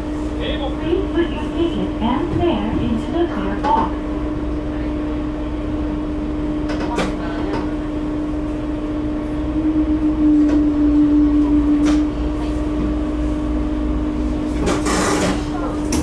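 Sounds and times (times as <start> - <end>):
diesel railcar running hum: 0.0 - 16.0.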